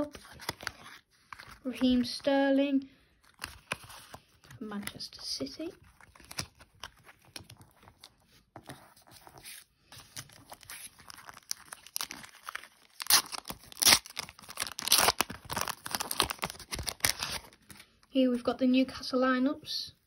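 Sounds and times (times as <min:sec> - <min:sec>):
cards being handled: 0:00.0 - 0:02.4, 0:03.2 - 0:18.0
wrapper tearing and crinkling: 0:05.8 - 0:07.8, 0:10.1 - 0:18.0.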